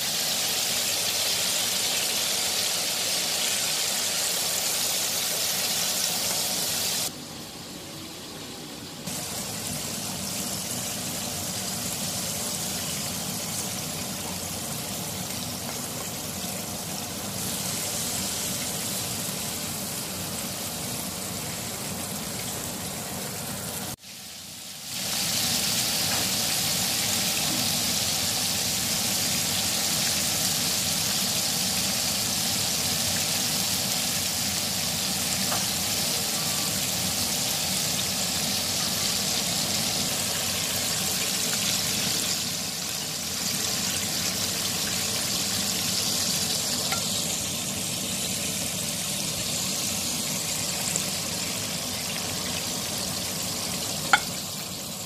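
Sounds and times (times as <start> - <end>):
chicken sizzling in hot oil: 0.0 - 55.0.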